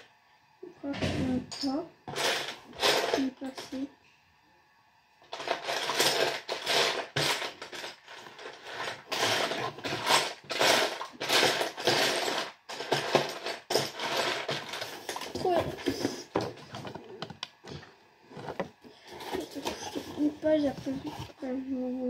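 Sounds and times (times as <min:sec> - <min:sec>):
hands rummaging plastic bricks: 0:05.3 - 0:17.4.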